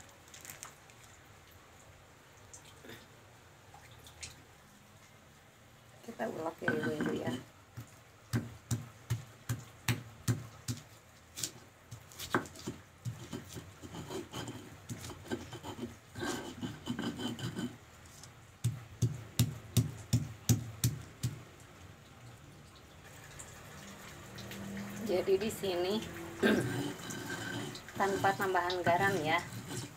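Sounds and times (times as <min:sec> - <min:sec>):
stone pestle knocking in mortar: 0:06.6 - 0:07.4, 0:08.3 - 0:10.9, 0:18.6 - 0:21.4
stone scraping and rubbing: 0:06.6 - 0:07.5, 0:12.1 - 0:18.4, 0:26.4 - 0:29.9.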